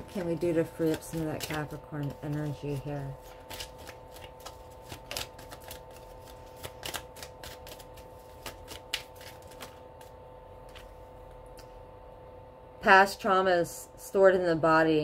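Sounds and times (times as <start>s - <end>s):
cards being shuffled: 0.0s - 11.0s.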